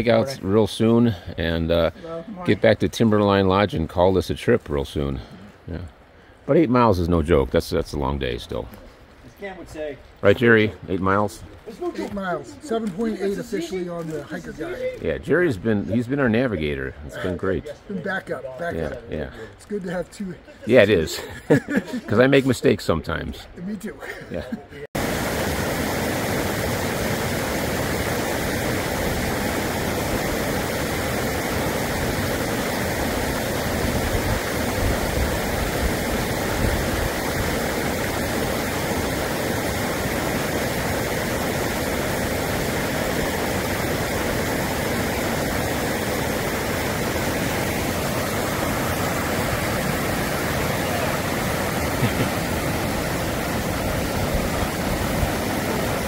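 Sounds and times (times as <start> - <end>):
rush of running water: 0.0 - 56.0.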